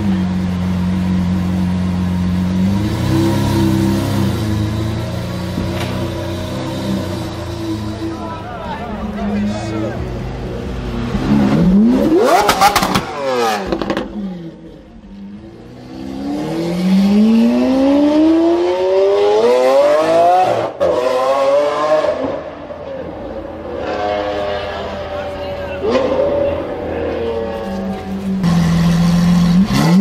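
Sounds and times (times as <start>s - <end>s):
sports car engine revving: 0.0s - 8.2s, 9.9s - 30.0s
exhaust pops and crackles: 5.5s - 6.2s, 12.3s - 13.1s.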